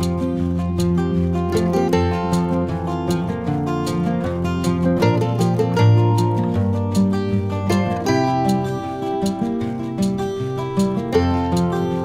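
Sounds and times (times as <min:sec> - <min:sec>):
plucked guitar notes: 0:00.0 - 0:12.0
steady beat: 0:00.0 - 0:12.0.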